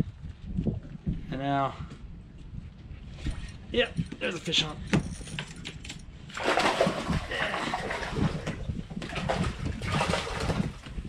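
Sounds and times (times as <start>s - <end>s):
fish splashing in water: 6.4s - 10.8s.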